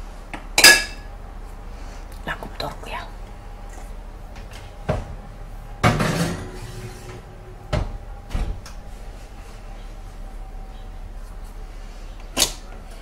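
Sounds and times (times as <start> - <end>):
oven door opening and shutting: 5.8 - 8.9.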